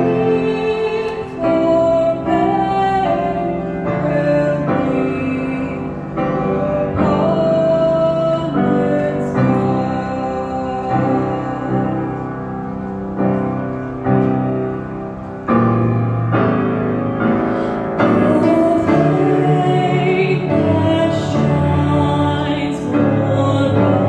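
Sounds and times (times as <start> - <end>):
mixed choir singing a hymn: 0.0 - 12.4, 18.0 - 24.0
grand piano chords: 0.0 - 24.0.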